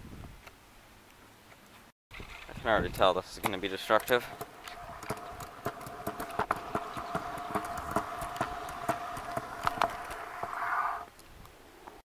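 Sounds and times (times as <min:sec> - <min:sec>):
plastic scraping on concrete: 0:02.1 - 0:11.2
scooter wheels clicking and knocking: 0:03.0 - 0:11.1.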